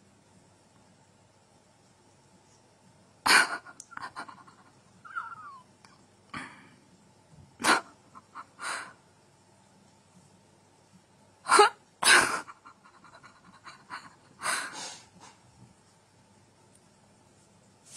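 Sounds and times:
cat hissing: 0:11.5 - 0:15.4.

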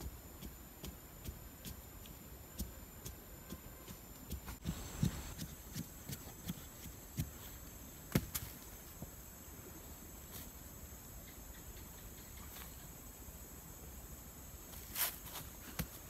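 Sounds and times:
stick thudding into dirt: 0:08.1 - 0:08.6
soil scraping and rustling: 0:14.7 - 0:16.0.

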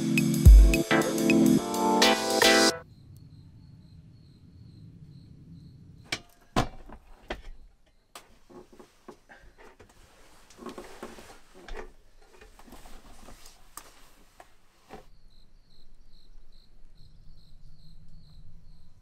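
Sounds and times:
crickets chirping: 0:02.8 - 0:08.2, 0:15.1 - 0:19.0.

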